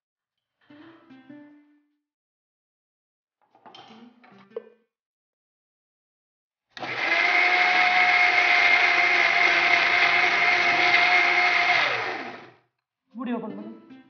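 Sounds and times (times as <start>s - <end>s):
mixer grinder whining: 6.8s - 12.6s.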